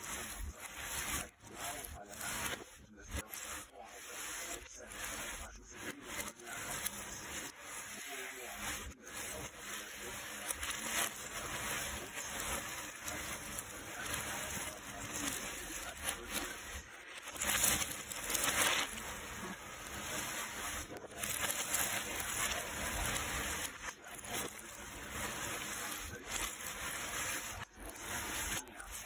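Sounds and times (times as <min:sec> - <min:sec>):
puzzle pieces rustling clatter: 0:06.0 - 0:29.0.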